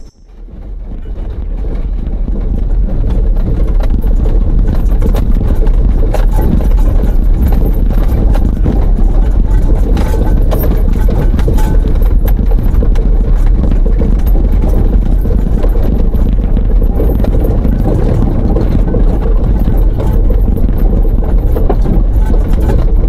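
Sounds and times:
knocks and rattles: 0:00.0 - 0:23.0
vehicle engine and road noise: 0:00.0 - 0:23.0.

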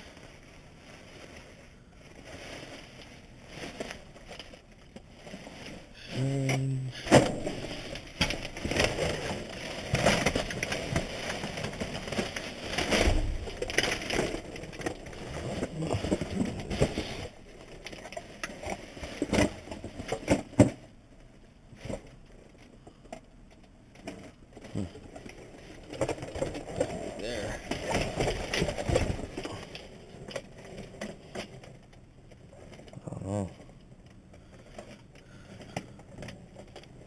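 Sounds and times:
plastic bags crinkling: 0:00.0 - 0:20.6, 0:24.1 - 0:37.0
cardboard boxes scraping: 0:05.2 - 0:17.4.

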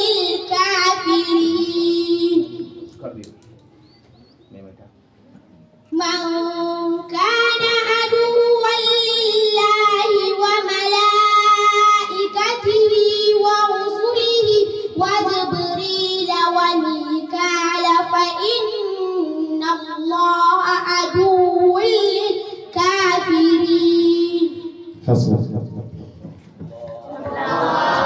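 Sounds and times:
girl chanting recitation: 0:00.0 - 0:03.0, 0:05.9 - 0:25.0.

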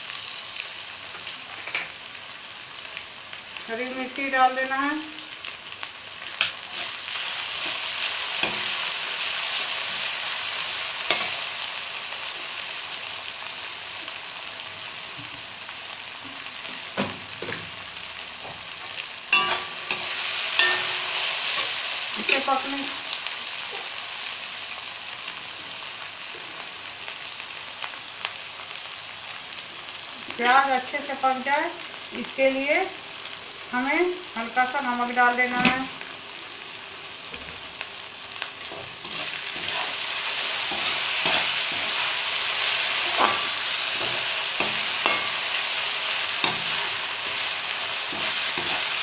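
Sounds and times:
vegetables sizzling in oil: 0:00.0 - 0:49.0
metal spoon scraping a pan: 0:19.3 - 0:22.5, 0:38.6 - 0:49.0.

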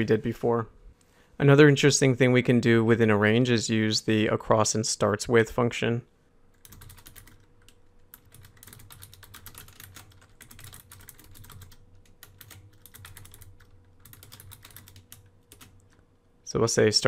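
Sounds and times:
typing on computer keyboard: 0:06.6 - 0:16.0.

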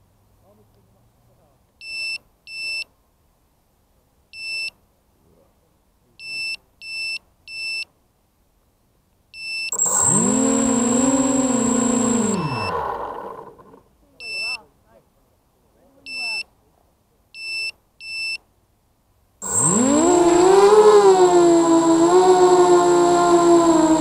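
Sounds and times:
quadcopter motors whining: 0:09.7 - 0:13.8, 0:19.4 - 0:24.0.

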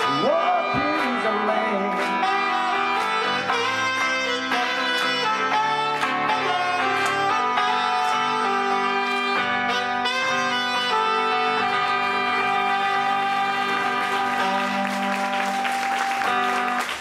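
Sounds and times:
rock band with horns: 0:00.0 - 0:17.0.

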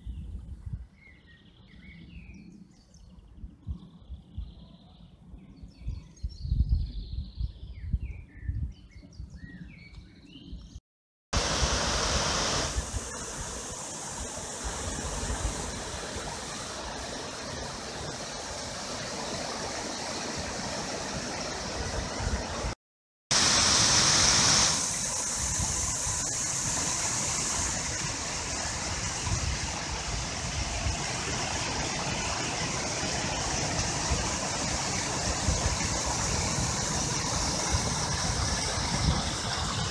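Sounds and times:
wind gusts on microphone: 0:03.0 - 0:10.8, 0:11.4 - 0:22.8, 0:23.4 - 0:39.9
waterfall splashing into pool: 0:11.4 - 0:22.7, 0:23.3 - 0:39.9.

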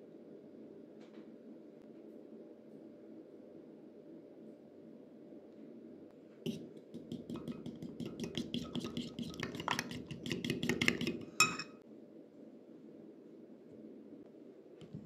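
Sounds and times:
fork clinking against glass bowl: 0:07.2 - 0:11.8.

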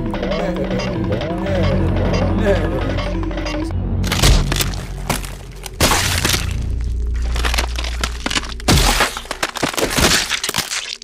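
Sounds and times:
dense crackling and cracking: 0:04.1 - 0:11.0.

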